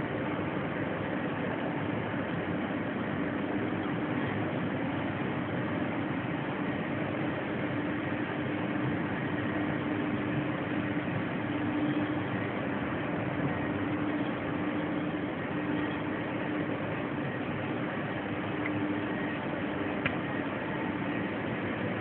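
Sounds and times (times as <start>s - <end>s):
machine drone with low tone: 0.0s - 22.0s.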